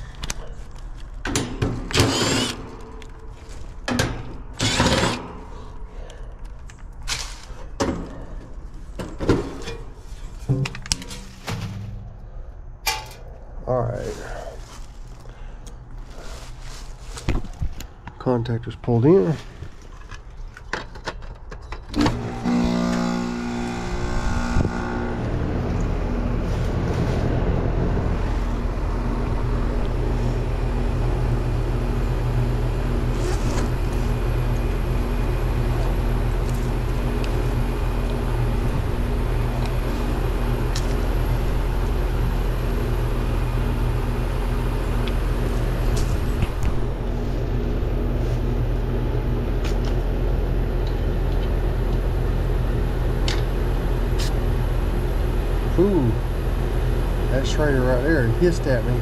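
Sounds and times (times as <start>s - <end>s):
compressor hum: 0.0s - 20.7s, 21.8s - 59.0s
condenser fan running: 21.9s - 59.0s.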